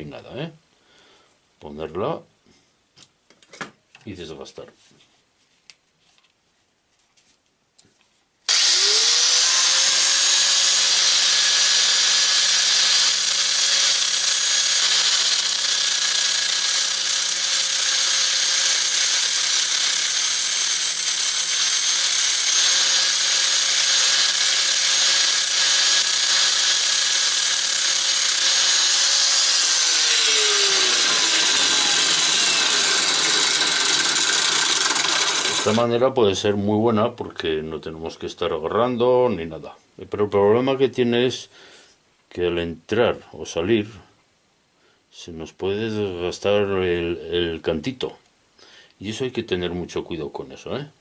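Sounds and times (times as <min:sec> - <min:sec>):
abrasive disc grinding a coin: 0:08.5 - 0:35.9
angle grinder whining: 0:08.5 - 0:36.0.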